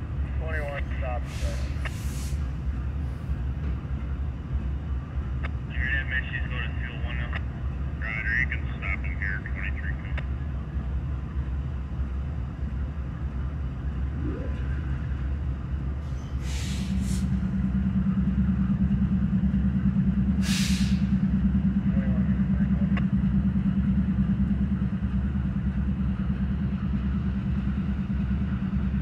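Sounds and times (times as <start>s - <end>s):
diesel locomotives idling: 0.0s - 29.0s
loud steady drone: 0.0s - 29.0s
hisses of released air: 1.2s - 2.5s, 16.4s - 17.4s, 20.4s - 21.1s.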